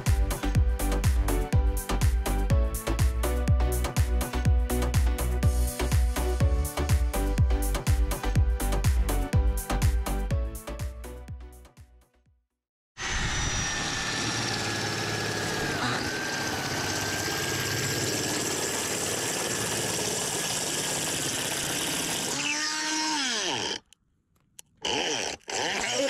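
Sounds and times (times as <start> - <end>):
electric drill whining: 13.0 - 24.0, 24.8 - 26.0.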